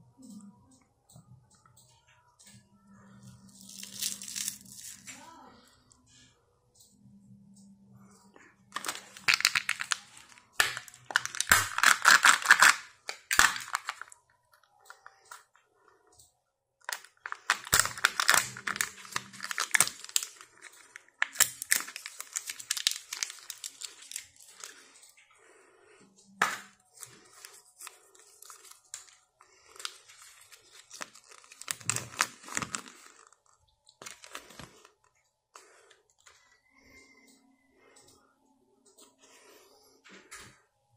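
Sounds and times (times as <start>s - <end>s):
plastic and paper crinkling: 8.7s - 14.2s, 16.9s - 25.0s, 26.6s - 35.7s
foil lid tearing: 10.6s - 14.0s, 17.4s - 20.4s.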